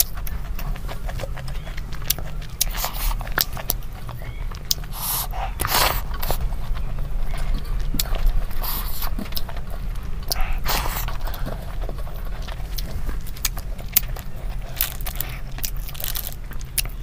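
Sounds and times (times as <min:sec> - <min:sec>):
lip clicks: 0:00.0 - 0:17.0
steady low hum: 0:00.0 - 0:17.0
wet chewing: 0:00.0 - 0:17.0
sharp breaths: 0:04.2 - 0:07.5, 0:08.5 - 0:09.2, 0:10.3 - 0:12.4.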